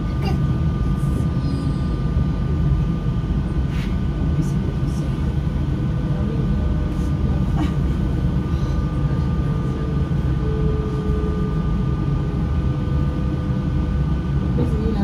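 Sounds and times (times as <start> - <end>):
faint steady whine: 0.0 - 15.0
train rumbling on track: 0.0 - 15.0.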